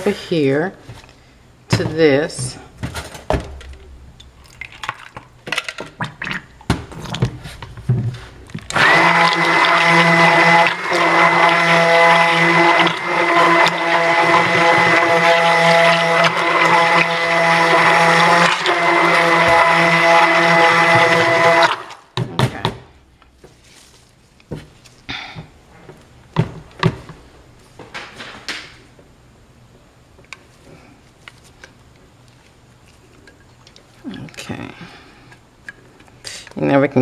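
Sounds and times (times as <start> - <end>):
containers knocking and clinking: 1.7 - 22.9
stick blender running: 8.5 - 22.1.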